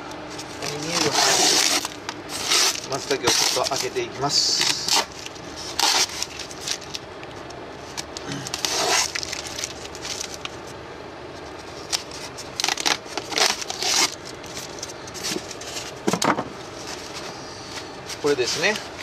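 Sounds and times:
tape peeling: 0.3 - 10.8, 11.4 - 16.0
foam scraping and crackling: 0.4 - 7.0, 8.4 - 10.5, 16.7 - 19.0.

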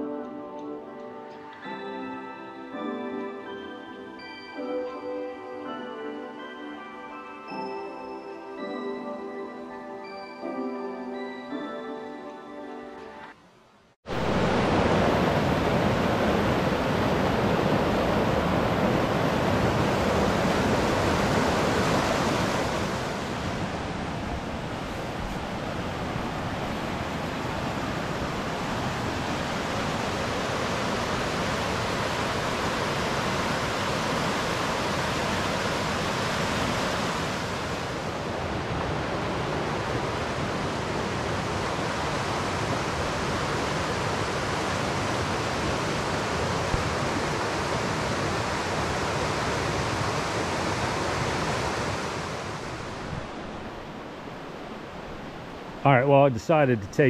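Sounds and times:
fast-flowing creek water: 14.1 - 38.0.

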